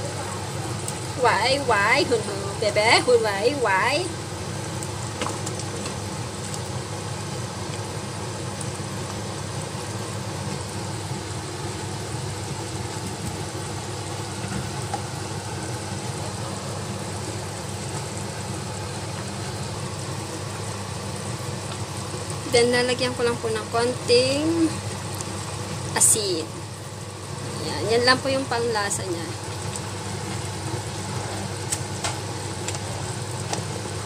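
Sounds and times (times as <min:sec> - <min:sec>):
soup boiling in a pot: 0:00.0 - 0:34.0.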